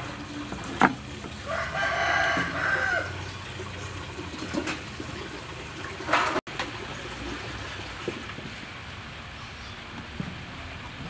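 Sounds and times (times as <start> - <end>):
rooster crowing: 1.4 - 3.2.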